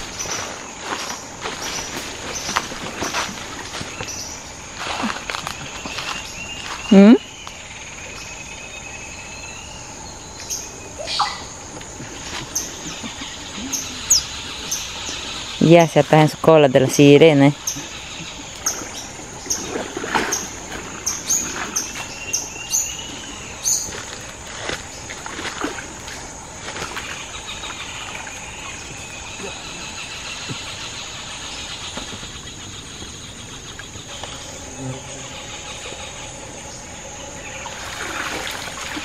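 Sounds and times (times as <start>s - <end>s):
water splashing and sloshing: 0.0s - 8.2s, 11.2s - 16.7s, 17.5s - 34.6s, 35.4s - 39.0s
high-pitched insect drone: 25.2s - 39.0s
rush of water: 37.5s - 39.0s.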